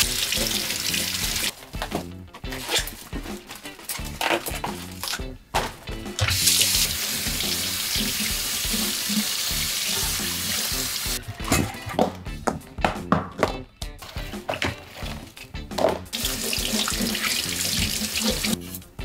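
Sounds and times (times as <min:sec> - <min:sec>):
water running from a tap: 0:00.0 - 0:01.5, 0:06.2 - 0:11.2, 0:16.1 - 0:18.6
background music: 0:00.0 - 0:19.0.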